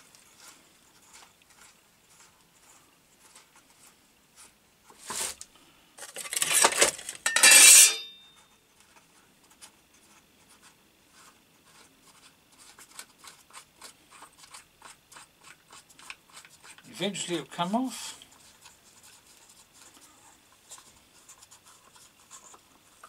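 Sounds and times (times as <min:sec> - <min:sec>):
plastic scraping and clattering: 0:04.9 - 0:07.6.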